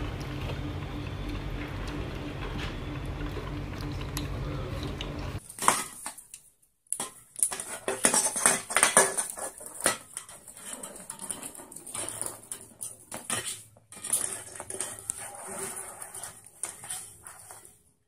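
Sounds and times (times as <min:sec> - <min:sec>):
can rattling on wooden floor: 0:07.0 - 0:17.7.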